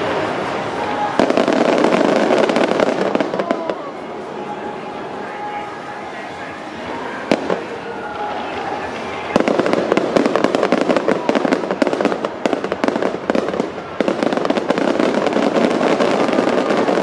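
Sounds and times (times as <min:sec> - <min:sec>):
fireworks bursting: 0:00.0 - 0:17.0.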